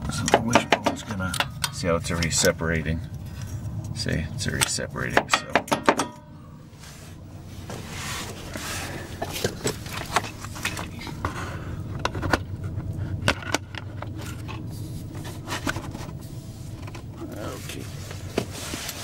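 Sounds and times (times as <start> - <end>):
steady low hum: 0.0 - 19.0
metallic clicks and knocks: 4.6 - 6.3.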